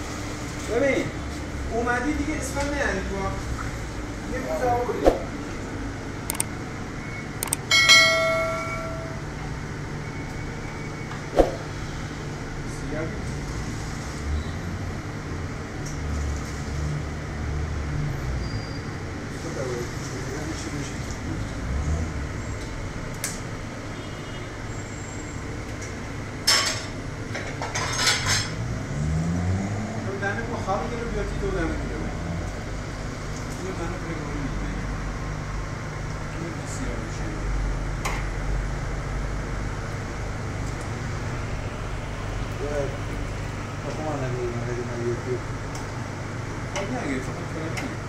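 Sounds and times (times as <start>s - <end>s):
ringing pot clang: 7.7s - 9.2s
metal kitchenware clanking: 27.5s - 28.6s.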